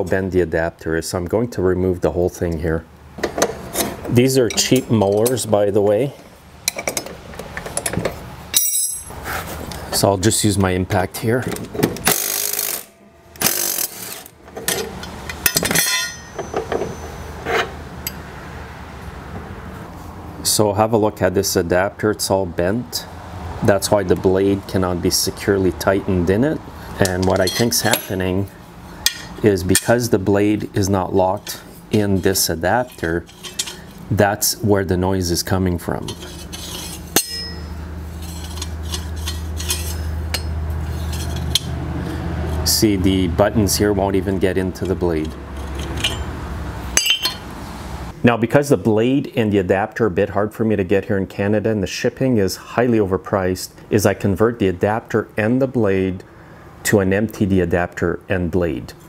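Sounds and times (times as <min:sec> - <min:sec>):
steady low hum: 0:00.0 - 0:59.0
metal clinks and rattles: 0:06.7 - 0:09.1, 0:12.0 - 0:17.2, 0:36.2 - 0:41.7, 0:45.5 - 0:46.3, 0:47.0 - 0:47.5.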